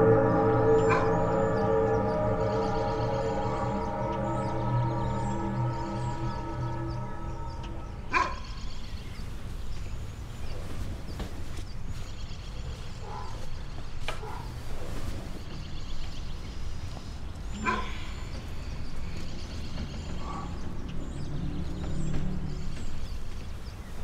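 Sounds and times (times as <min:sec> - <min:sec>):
distant animal calls: 0:17.5 - 0:23.6.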